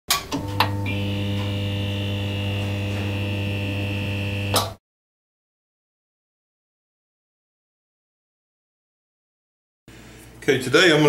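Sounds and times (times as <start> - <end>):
neon sign mains hum: 0.4 - 4.8.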